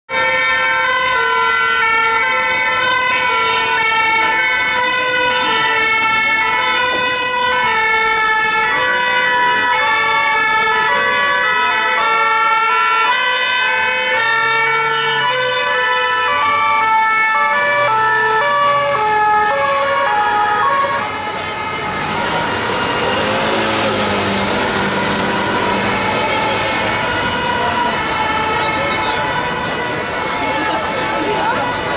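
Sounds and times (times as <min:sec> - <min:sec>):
two-tone sirens: 0:00.1 - 0:31.9.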